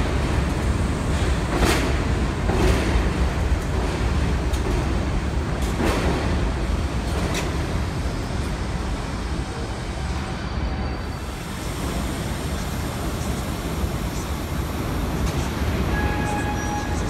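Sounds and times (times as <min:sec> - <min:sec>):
subway train wheels rumbling: 0:00.0 - 0:17.0
sharp clicks of train wheels: 0:00.1 - 0:08.6.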